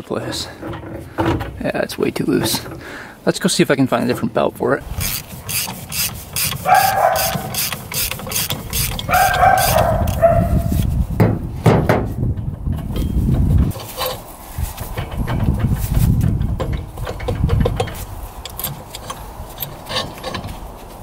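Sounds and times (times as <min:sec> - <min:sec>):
loose drive belt rattling: 0:04.0 - 0:10.4, 0:12.4 - 0:20.6.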